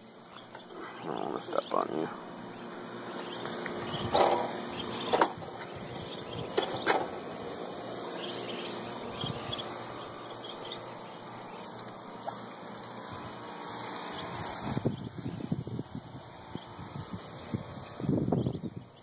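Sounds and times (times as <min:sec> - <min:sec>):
ducklings peeping: 0:00.0 - 0:19.0.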